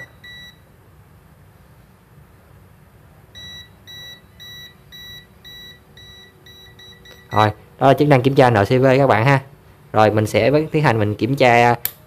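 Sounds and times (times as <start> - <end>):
voltage detector beeping: 0.0 - 0.6, 3.4 - 7.6.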